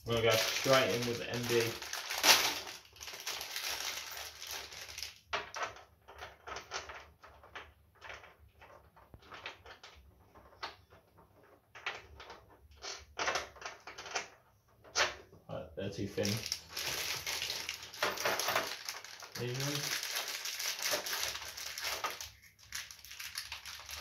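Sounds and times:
plastic bag crinkling: 0.0s - 5.2s, 16.2s - 24.0s.

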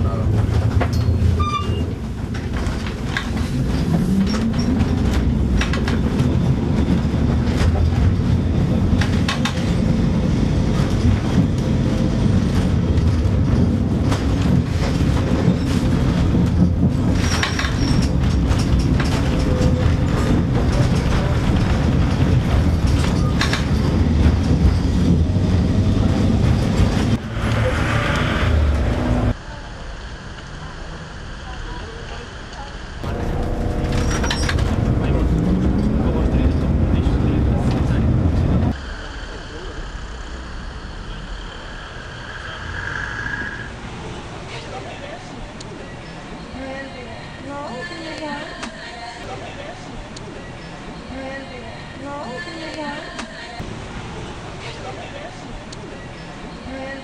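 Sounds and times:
tram body rattling: 0.0s - 29.4s, 33.0s - 38.8s
tram rumbling on rails: 0.0s - 57.0s
wheels clattering over track: 0.1s - 27.8s, 33.0s - 38.8s.

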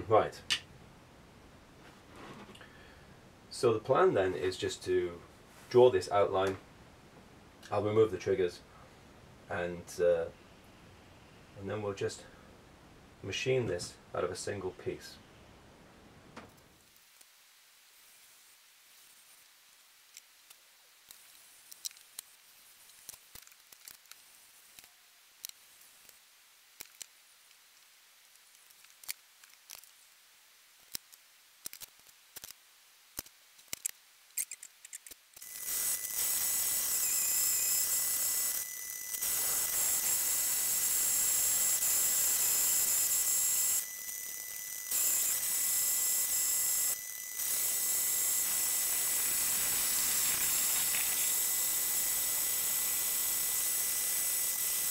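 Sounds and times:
bandsaw cutting metal: 35.4s - 54.9s.

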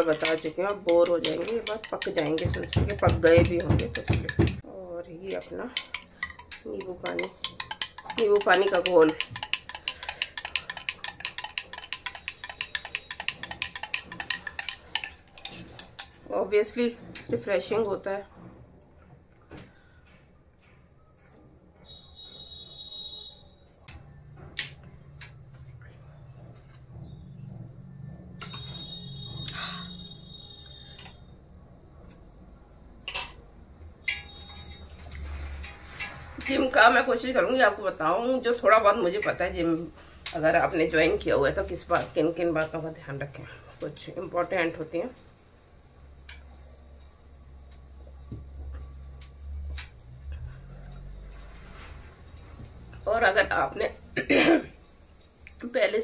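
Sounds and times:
spoon clinking in glass: 34.0s - 34.8s.

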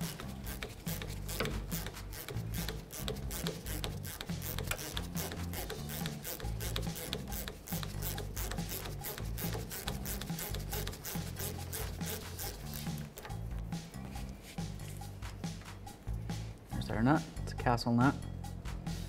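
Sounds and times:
socket ratchet clicking: 0.0s - 13.4s
background music: 0.0s - 19.0s.

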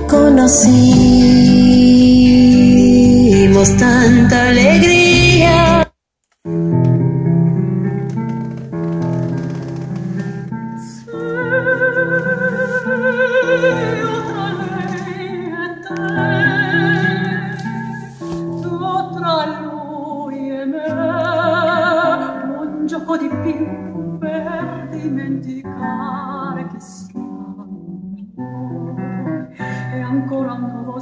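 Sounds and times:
song with vibrato vocals: 0.0s - 5.9s, 10.8s - 18.2s.

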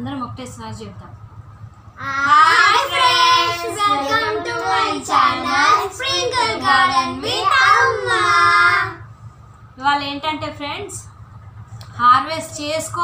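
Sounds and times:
young children singing: 2.0s - 9.0s.

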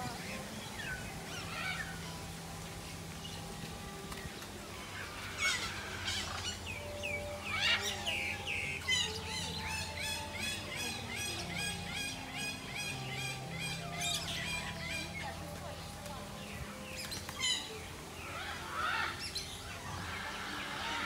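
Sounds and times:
birds chirping and calling: 0.0s - 21.0s.

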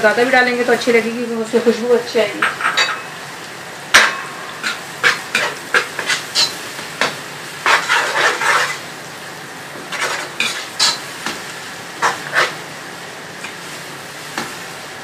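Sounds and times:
food sizzling: 0.0s - 15.0s
spoon scraping a pan: 4.0s - 8.9s, 9.8s - 11.4s, 12.0s - 12.7s.

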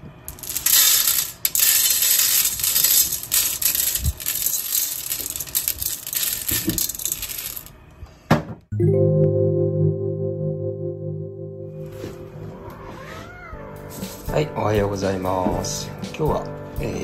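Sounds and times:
kibble clattering on metal tray: 0.3s - 7.7s.

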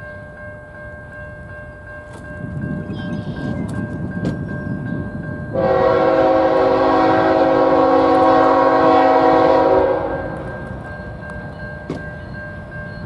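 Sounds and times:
low rumble of train: 0.0s - 13.0s
locomotive air horn blast: 5.5s - 10.6s.

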